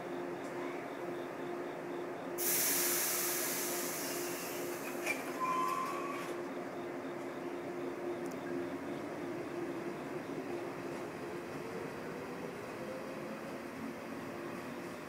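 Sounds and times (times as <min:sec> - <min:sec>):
electric train hum: 0:00.0 - 0:15.0
compressed air hiss: 0:02.4 - 0:04.7.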